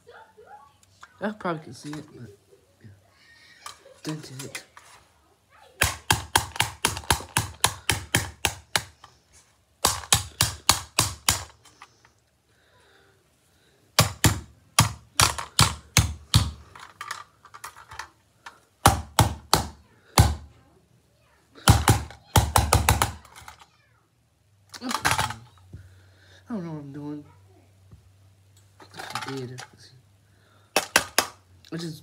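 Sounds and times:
screwdriver tapping sheet metal: 5.8s - 9.1s, 9.8s - 11.8s.

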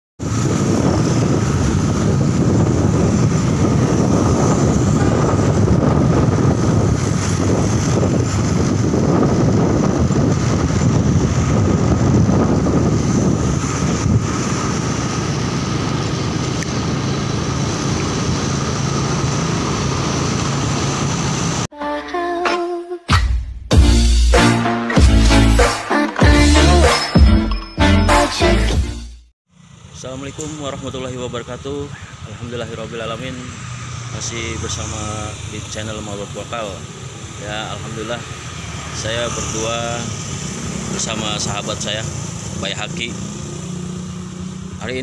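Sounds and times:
motorcycle engine humming: 0.2s - 21.7s, 29.5s - 45.0s
wind rushing over microphone: 0.2s - 21.7s.

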